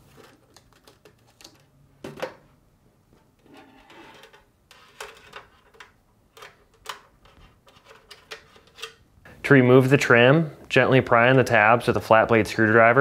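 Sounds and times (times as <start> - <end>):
hands rustling tape and wires: 0.0 - 1.7.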